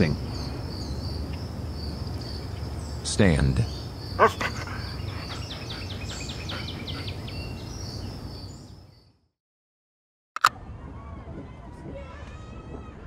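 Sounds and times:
insect trill: 0.0 - 6.4
bird chirps: 0.0 - 9.2.

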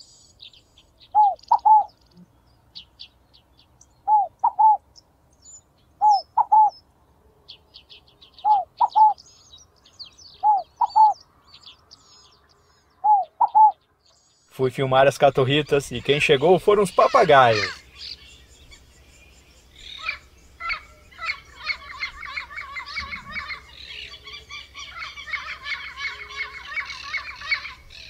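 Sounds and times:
faint small birds chirping: 0.0 - 28.0
dove singing three-note call: 1.1 - 1.9.

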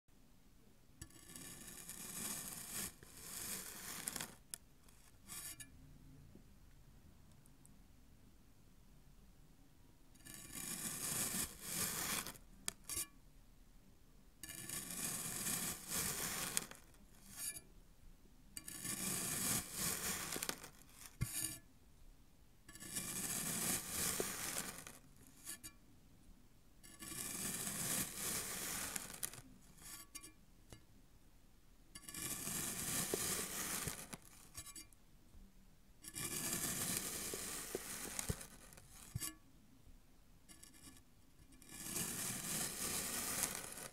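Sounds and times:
knife slicing kinetic sand: 1.0 - 5.6, 10.2 - 13.1, 14.4 - 17.6, 18.6 - 21.6, 22.7 - 25.7, 26.8 - 30.3, 32.0 - 34.9, 36.0 - 39.3, 41.6 - 43.9.

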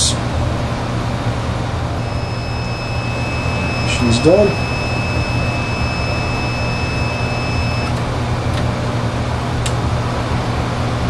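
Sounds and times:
cooling fan whirring: 0.0 - 11.0
steady high tone: 1.9 - 8.0.

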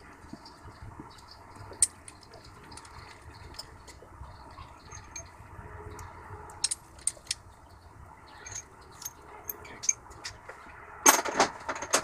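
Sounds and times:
metal clatter: 6.6 - 7.4, 8.3 - 10.4, 11.0 - 12.0.

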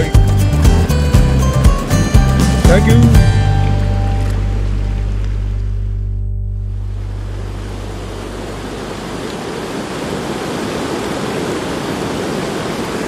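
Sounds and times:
stream water rushing: 0.0 - 6.0, 6.6 - 13.0
background music low notes: 0.0 - 9.4.

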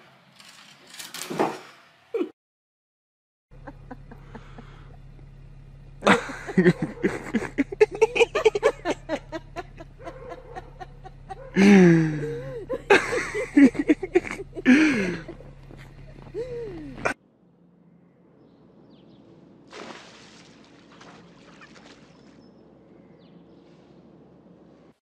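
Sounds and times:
people laughing: 3.6 - 5.2, 6.0 - 17.2
drawn-out exclamation: 3.6 - 17.2
faint steady hum: 3.6 - 19.6.

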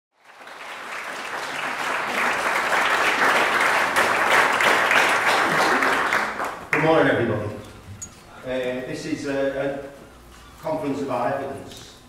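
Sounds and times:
audience applauding: 0.2 - 6.9.

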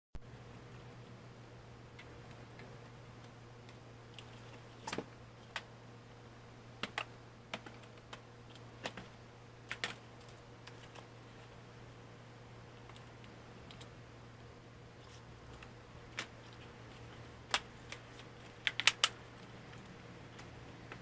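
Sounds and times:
plastic clicks and snaps: 18.6 - 19.2.

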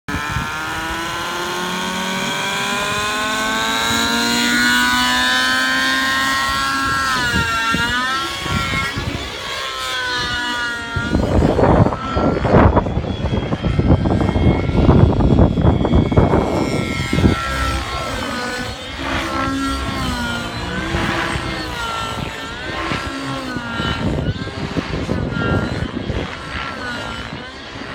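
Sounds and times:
model helicopter engine running: 0.1 - 27.9
loud rushing bursts: 14.2 - 26.1.

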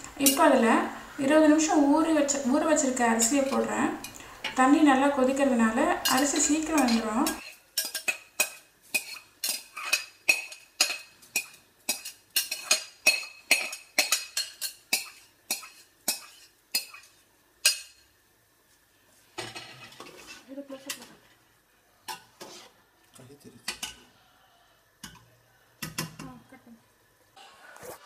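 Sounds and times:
spatula stirring rice in pot: 6.1 - 18.0, 19.7 - 21.0, 22.1 - 22.8.

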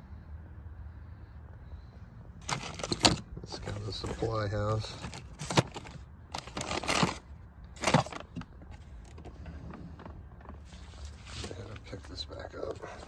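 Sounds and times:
plastic packaging crinkling: 4.8 - 8.4.

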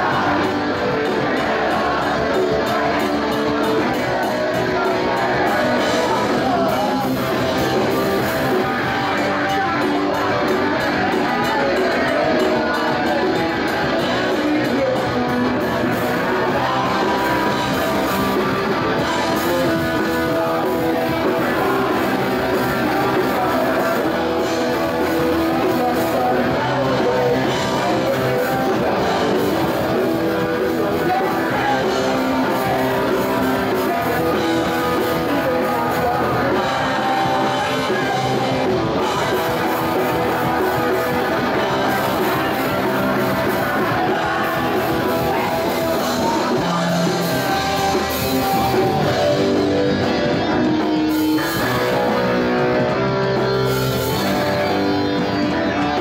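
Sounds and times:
electric guitars: 0.0 - 56.0
person singing: 0.0 - 56.0
rock band playing: 0.0 - 56.0.

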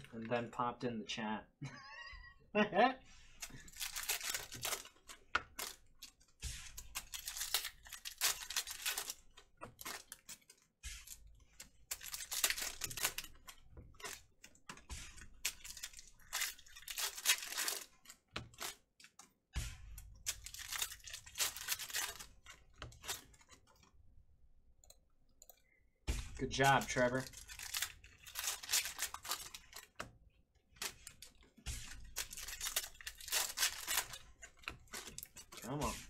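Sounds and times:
foil wrappers tearing and crinkling: 3.3 - 23.8, 26.1 - 30.1, 30.7 - 36.0.

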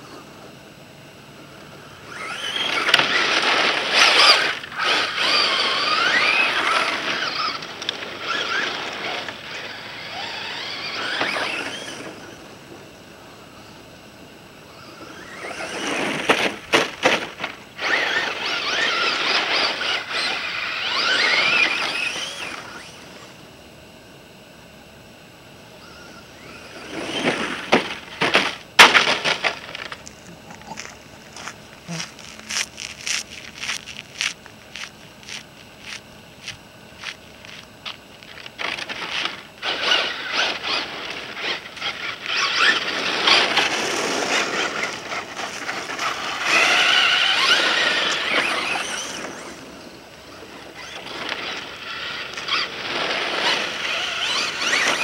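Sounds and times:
tyres scraping gravel: 1.6 - 12.9, 14.7 - 23.3, 25.8 - 55.0
toy truck motor whining: 1.8 - 12.8, 14.6 - 23.5, 25.8 - 28.6, 37.0 - 55.0.

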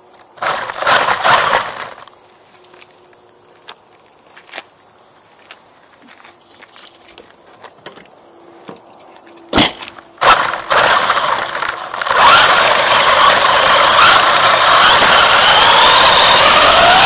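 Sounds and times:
electric motor whine: 0.3 - 2.1, 10.0 - 17.0
tyre noise on asphalt: 0.4 - 17.0.

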